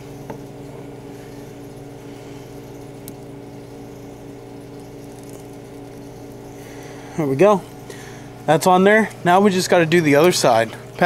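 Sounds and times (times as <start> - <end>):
low machine hum: 0.0 - 11.0.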